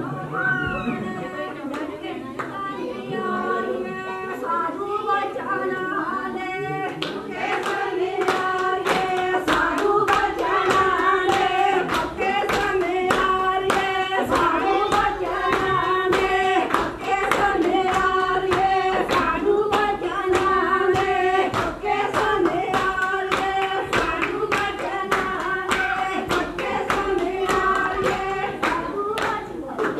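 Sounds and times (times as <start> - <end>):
women singing in chorus: 0.0 - 29.9
hand clapping: 6.9 - 29.9.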